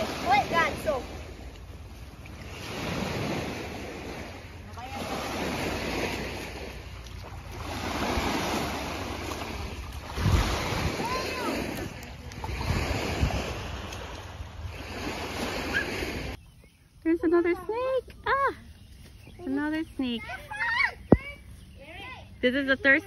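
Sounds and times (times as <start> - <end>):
waves washing against shore: 0.0 - 16.4
wind buffeting microphone: 0.0 - 22.4.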